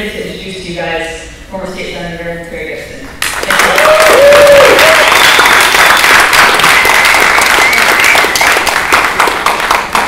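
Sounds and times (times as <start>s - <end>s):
audience applauding: 3.2s - 10.0s.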